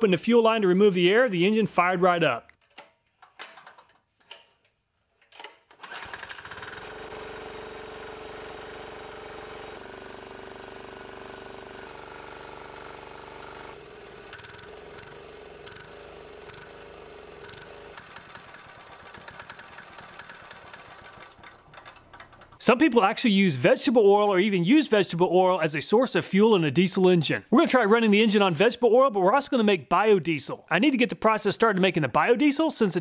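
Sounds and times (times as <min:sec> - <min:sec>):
small diesel engine running: 0:05.8 - 0:22.6.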